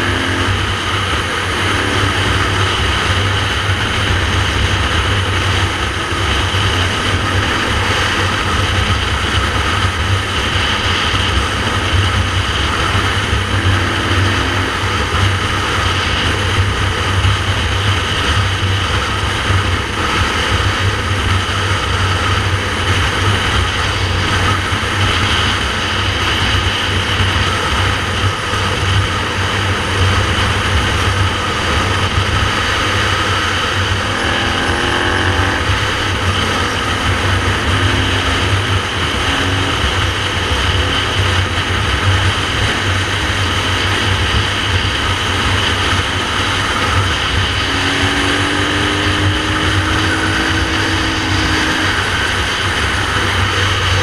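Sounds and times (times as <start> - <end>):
motorcycle engine: 0.0 - 54.0
wind rush on microphone: 0.0 - 54.0.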